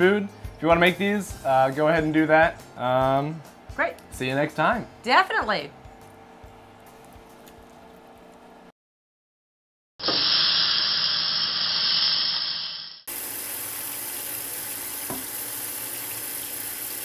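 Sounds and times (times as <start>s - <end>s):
loud steady hiss: 10.0s - 13.0s
faucet water running into sink: 10.0s - 17.0s
light knock: 15.1s - 15.3s.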